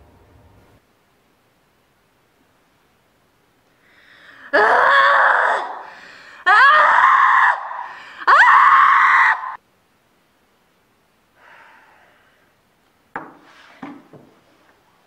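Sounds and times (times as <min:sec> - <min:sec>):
woman screaming: 0:04.5 - 0:09.6.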